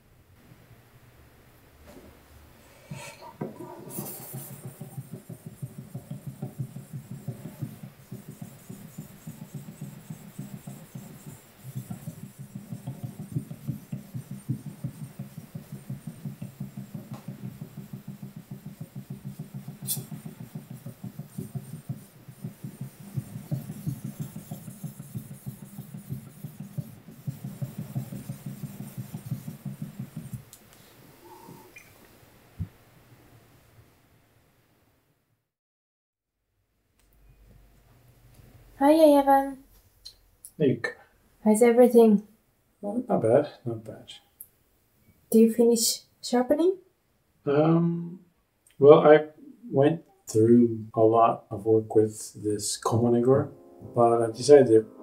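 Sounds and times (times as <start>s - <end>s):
knife blade rubbing on sharpening stone: 19.8s - 20.2s.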